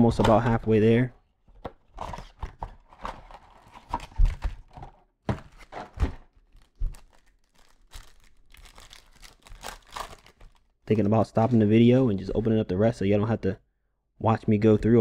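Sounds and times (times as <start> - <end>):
card pack wrappers crinkling: 5.5 - 10.7.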